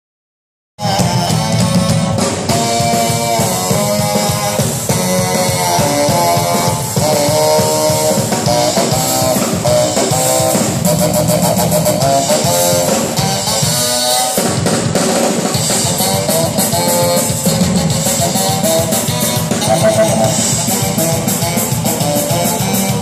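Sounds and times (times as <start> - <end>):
saxophone: 19.6 - 20.7
drum kit: 19.6 - 21.0.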